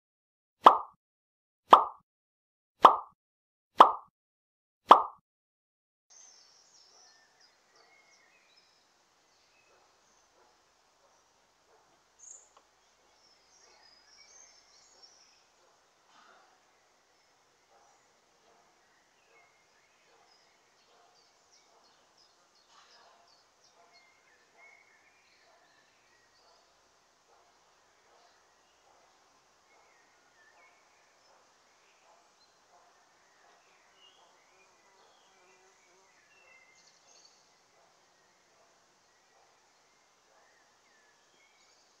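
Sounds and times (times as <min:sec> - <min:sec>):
faint birdsong chirps: 0:06.1 - 0:42.0
outdoor ambience: 0:06.1 - 0:42.0.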